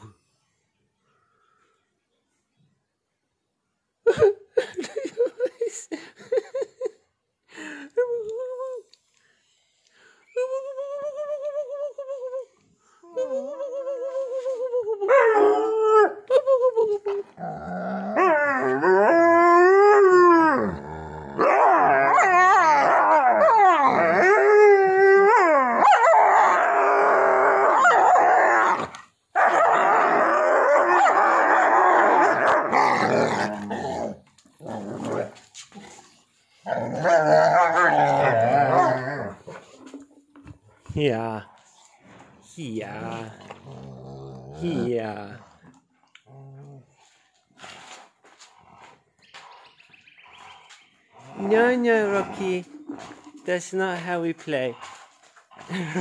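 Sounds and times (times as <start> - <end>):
dog growling and grumbling: 17.1 - 19.4, 20.3 - 24.6, 29.8 - 40.1, 42.9 - 47.1, 51.2 - 53.4
large dog howling: 17.6 - 35.4, 36.7 - 39.5.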